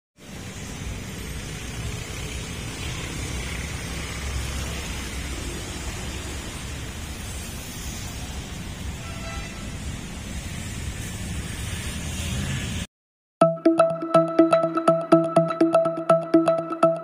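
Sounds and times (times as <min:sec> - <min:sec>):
street ambience low rumble: 0:00.2 - 0:12.9.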